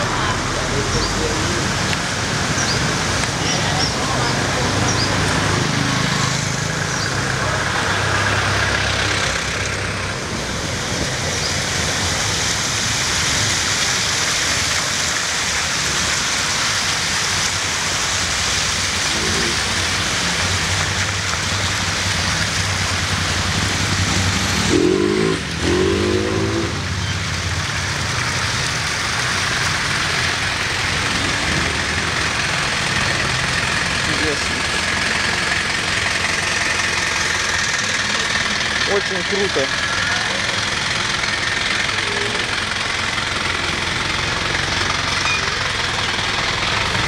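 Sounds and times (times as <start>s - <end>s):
tyre noise on wet road: 0.0s - 47.0s
vehicle engines humming: 0.0s - 47.0s
vehicle passing close: 22.2s - 47.0s.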